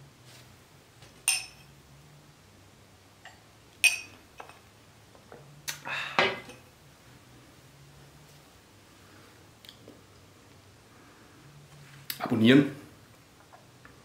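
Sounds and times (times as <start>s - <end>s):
glass tumbler clinking on tabletop: 1.3s - 1.7s.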